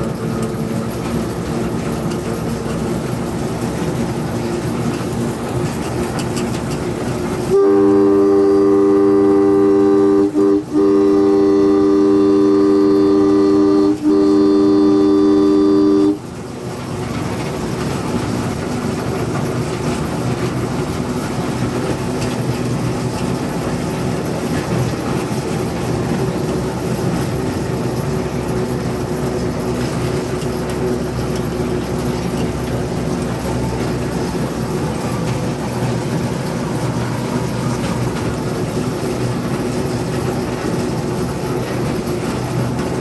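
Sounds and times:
train running: 0.0 - 43.0
locomotive horn blast: 7.4 - 16.3.

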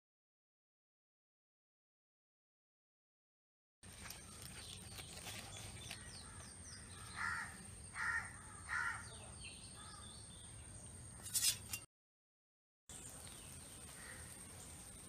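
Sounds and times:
small birds chirping: 3.8 - 11.6, 12.9 - 15.0
crow cawing: 6.2 - 9.2, 14.0 - 14.4.

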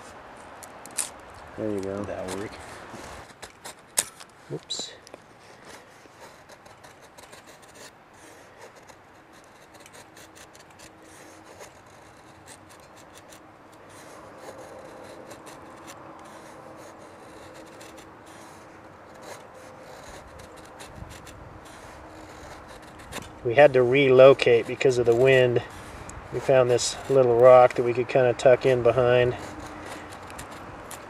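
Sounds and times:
knife scraping wood: 0.0 - 31.0.

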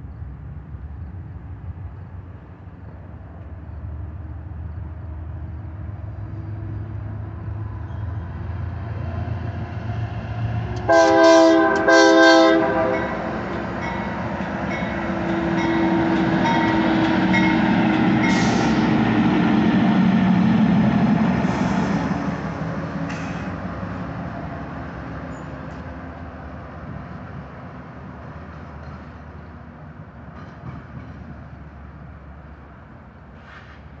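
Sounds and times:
diesel locomotives passing: 0.0 - 34.0
locomotive air horn: 10.8 - 13.4.

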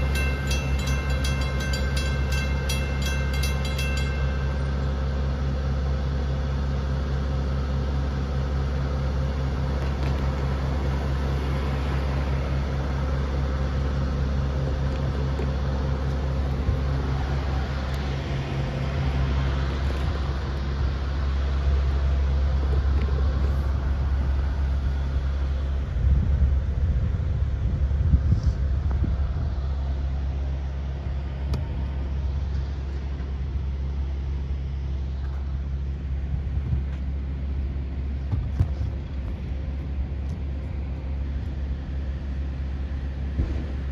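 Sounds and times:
low engine drone: 0.0 - 43.9
low rumbles: 0.0 - 43.9.

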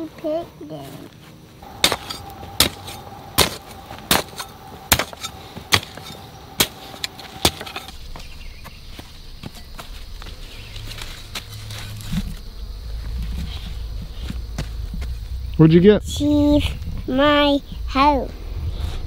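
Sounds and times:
hoe striking hard soil: 1.6 - 8.0.

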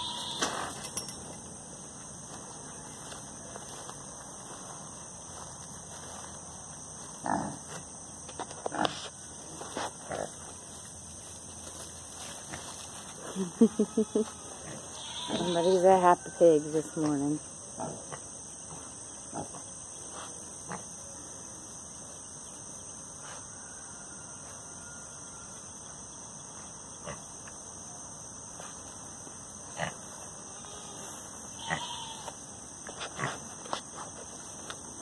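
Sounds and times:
high-pitched hiss: 0.0 - 2.7
pig grunting: 7.2 - 7.6.

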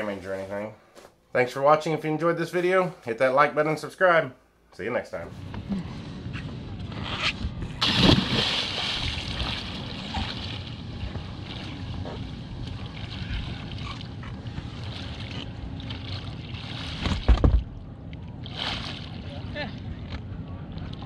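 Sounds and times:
person jumping into water splash: 7.8 - 10.7
water sloshing while swimming: 7.8 - 19.9.

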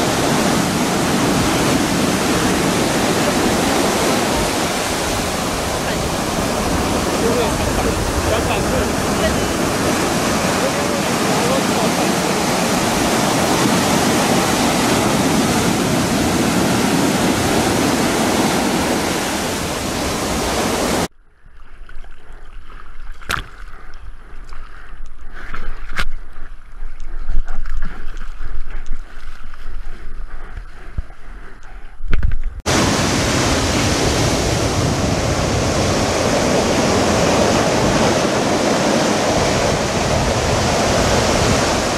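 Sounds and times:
breaking surf roar: 0.0 - 21.1, 32.7 - 41.9
water sloshing and splashing: 0.0 - 41.9.

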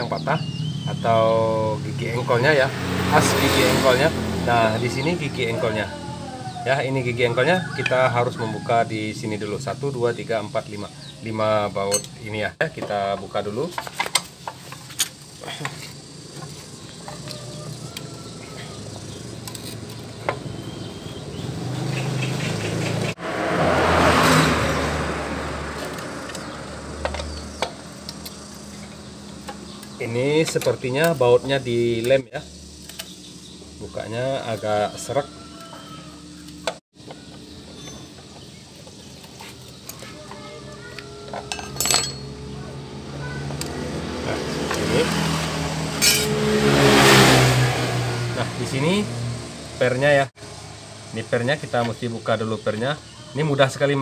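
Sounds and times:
motor vehicle engine passing: 0.0 - 11.7, 15.3 - 54.0
metal parts clinking: 41.3 - 42.4, 46.0 - 46.3.

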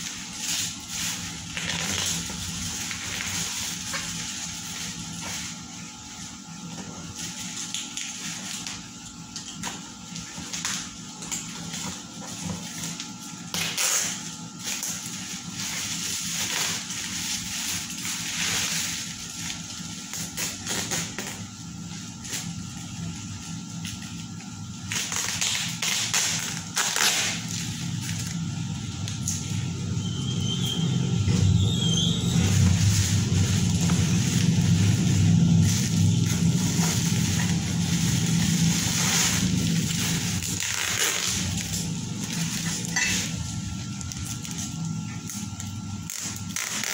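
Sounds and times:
bubble wrap crinkling: 0.0 - 13.1, 13.7 - 21.2, 31.6 - 46.9
low rumble: 29.4 - 40.4.

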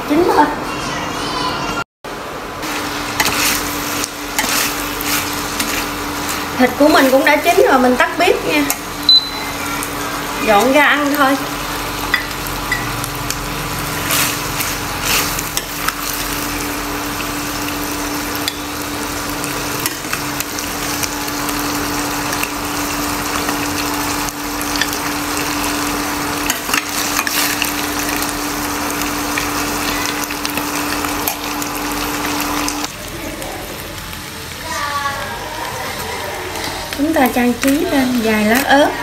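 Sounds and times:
meat sizzling in a pan: 2.6 - 39.0
spatula clinking and scraping pan: 3.2 - 7.5.

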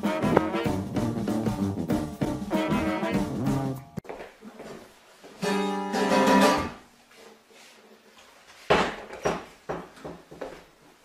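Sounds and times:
acoustic guitar chord strummed: 5.4 - 6.8.

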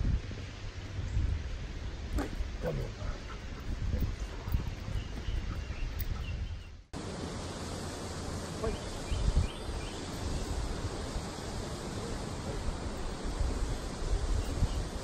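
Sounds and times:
wind buffeting microphone: 0.0 - 6.9, 8.6 - 15.0
steady outdoor rush: 0.0 - 15.0
small waterfall rushing: 7.0 - 15.0.

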